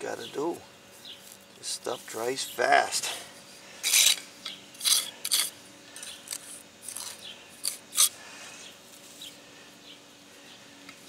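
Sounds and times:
trowel scraping mortar: 0:04.8 - 0:05.6.

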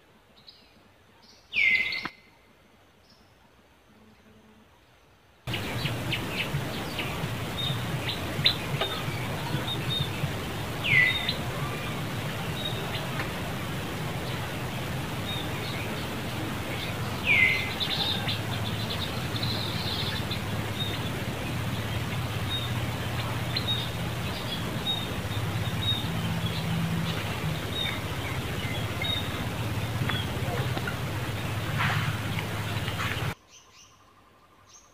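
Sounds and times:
bird calls sliding downward: 0:05.5 - 0:33.4
steady low hum: 0:05.5 - 0:33.4
birds chirping: 0:05.5 - 0:34.9.

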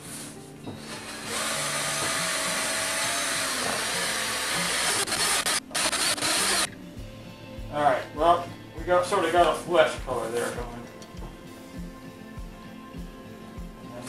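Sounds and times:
power drill mixing liquid: 0:00.8 - 0:06.7.

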